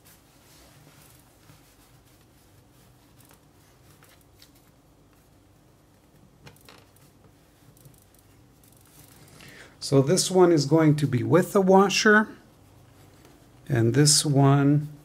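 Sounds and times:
hands rustling denim: 0:00.0 - 0:09.4
low room hum: 0:00.0 - 0:15.0.

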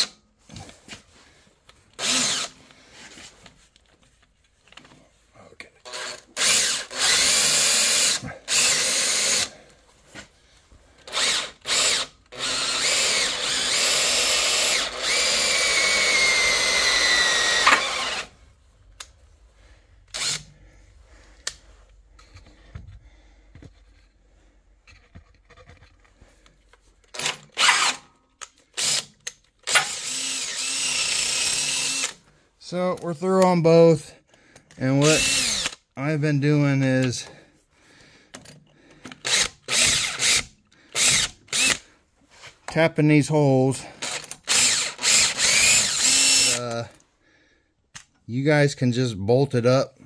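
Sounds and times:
cordless drill cutting steel: 0:00.0 - 0:00.2, 0:01.9 - 0:02.7, 0:05.8 - 0:09.6, 0:11.0 - 0:18.4, 0:20.1 - 0:20.6, 0:27.2 - 0:28.1, 0:28.7 - 0:32.2, 0:34.8 - 0:35.8, 0:39.2 - 0:41.9, 0:44.0 - 0:46.9
thin high tone of bit cutting: 0:11.1 - 0:18.3, 0:28.8 - 0:32.2, 0:44.0 - 0:46.8.

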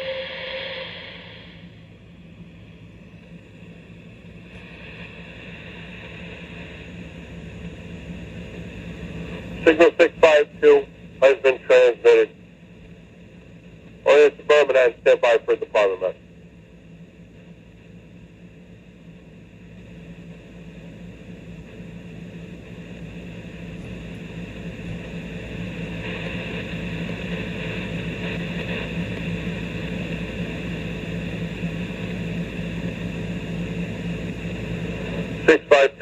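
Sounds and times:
radio static hiss: 0:00.0 - 0:01.8, 0:04.3 - 0:12.5, 0:13.8 - 0:16.2, 0:21.4 - 0:36.0
low hum: 0:00.0 - 0:36.0.

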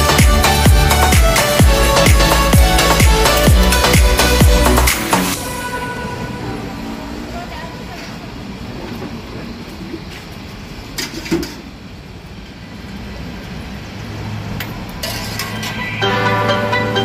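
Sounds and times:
background music: 0:00.0 - 0:06.9, 0:15.7 - 0:17.0
street background rumble: 0:00.0 - 0:17.0.

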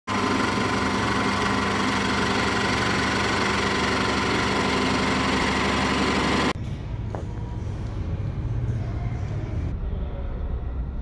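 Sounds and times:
drill bit boring into wood: 0:00.1 - 0:06.5
drill press motor droning: 0:00.1 - 0:06.6.

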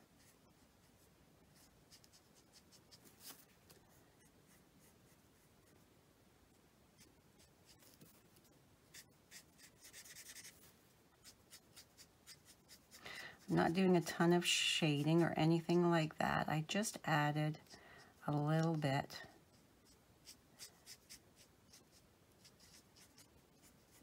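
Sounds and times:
marker scratching on cardstock: 0:08.9 - 0:10.6, 0:11.2 - 0:13.0, 0:19.5 - 0:24.0.

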